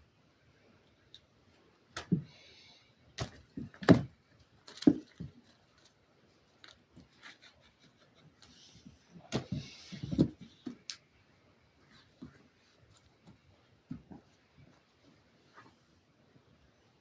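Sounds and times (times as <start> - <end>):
rustling: 3.2 - 11.0.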